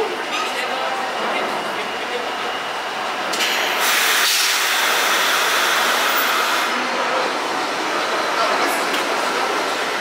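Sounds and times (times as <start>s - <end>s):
compressed air hissing: 3.6s - 6.7s.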